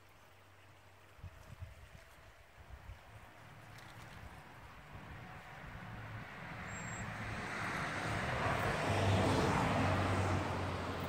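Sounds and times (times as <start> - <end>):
vehicle driving past: 3.7 - 11.0.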